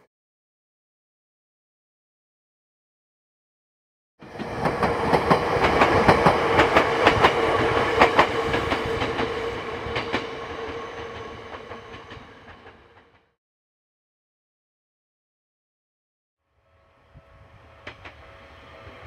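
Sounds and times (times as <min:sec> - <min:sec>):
train hum: 0:04.2 - 0:13.3, 0:16.6 - 0:19.0
train wheels clacking over rail joints: 0:04.4 - 0:09.3.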